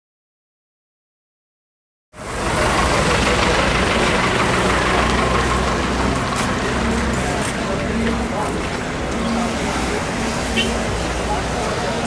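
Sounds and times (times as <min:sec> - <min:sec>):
vehicle engine idling: 0:02.2 - 0:11.4
traffic: 0:02.2 - 0:12.0.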